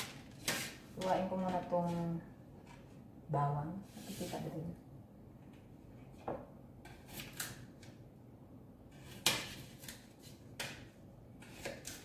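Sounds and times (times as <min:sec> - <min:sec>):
faint knife scraping: 0:11.4 - 0:12.0.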